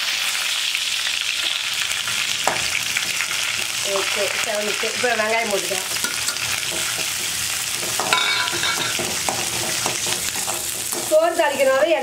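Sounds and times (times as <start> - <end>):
food sizzling in hot oil: 0.0 - 12.0
spatula scraping a pan: 5.8 - 11.9.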